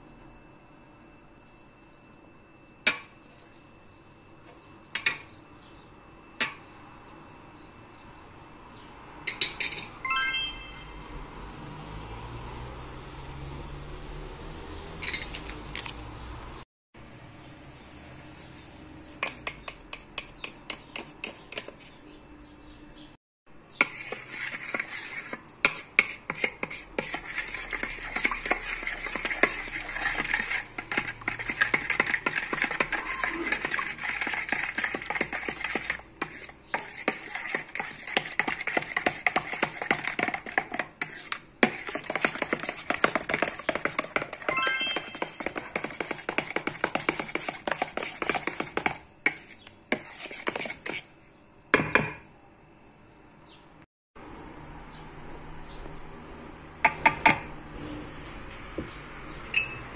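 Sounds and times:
dough kneaded by hand: 0:23.8 - 0:44.6, 0:45.2 - 0:51.2.

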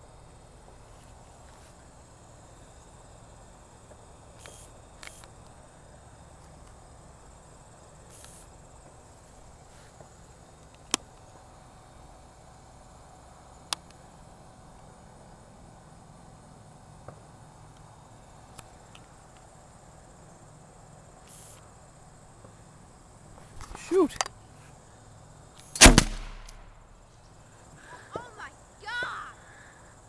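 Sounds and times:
insect chorus: 0:00.0 - 0:30.0
sharp handling clicks: 0:25.6 - 0:26.8.

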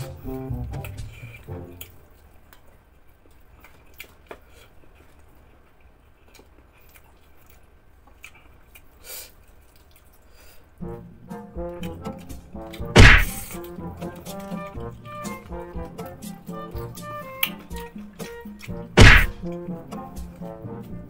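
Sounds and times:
chewing: 0:00.1 - 0:10.8, 0:11.6 - 0:21.0
fingers pulling fried chicken apart: 0:17.3 - 0:19.6.

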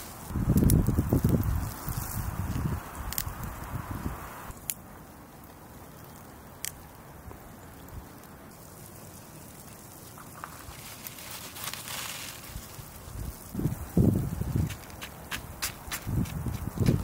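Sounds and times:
plant stems snapping: 0:00.0 - 0:03.6
leafy rustling: 0:00.0 - 0:17.0
handling rustle: 0:09.6 - 0:13.5.

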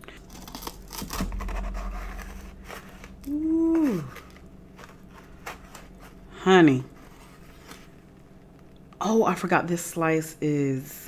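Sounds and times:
woman humming: 0:03.1 - 0:04.4.

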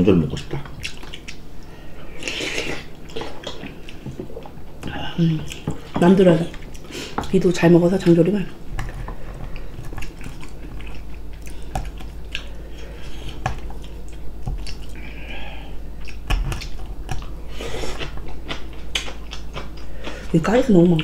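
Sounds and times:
chewing and biting food: 0:00.3 - 0:01.5, 0:02.2 - 0:04.6, 0:08.7 - 0:15.1, 0:15.9 - 0:21.0.

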